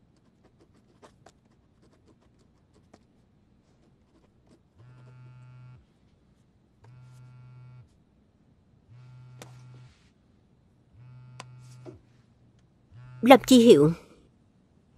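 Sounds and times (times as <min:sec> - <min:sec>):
low electric buzz: 0:04.8 - 0:05.9, 0:06.8 - 0:07.9, 0:08.8 - 0:10.0, 0:10.8 - 0:12.1, 0:12.8 - 0:13.6.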